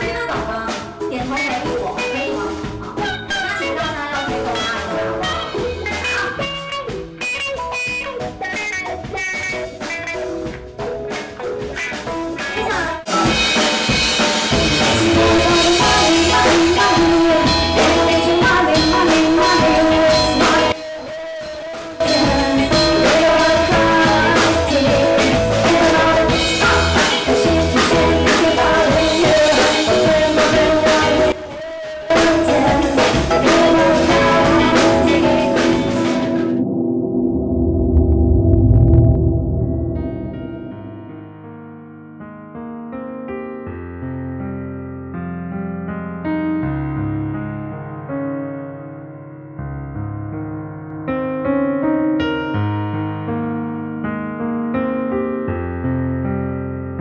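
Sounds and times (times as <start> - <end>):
drums: 0.0 - 36.9
keyboard: 0.0 - 57.0
electric guitar: 0.1 - 41.5.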